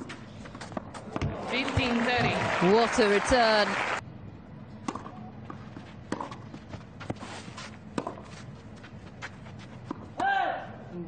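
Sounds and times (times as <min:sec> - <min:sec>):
tennis racket hitting ball: 0:06.1 - 0:08.4.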